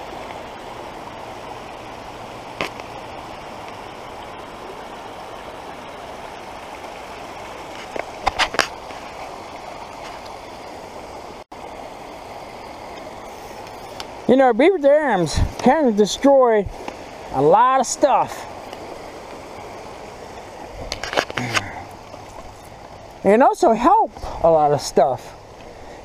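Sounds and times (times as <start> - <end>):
water rushing through sticks: 6.1 - 10.4.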